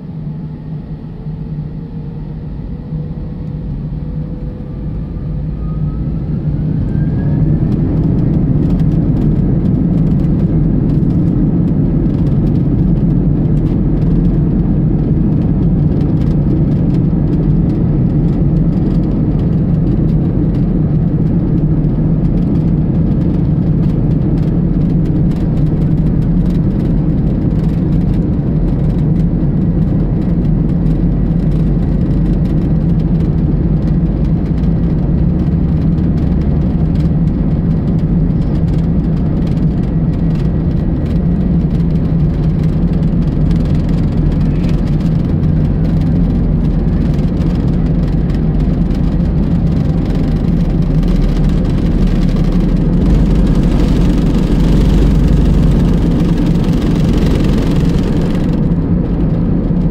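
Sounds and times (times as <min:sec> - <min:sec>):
jet engines whining and rushing: 0:00.0 - 0:59.9.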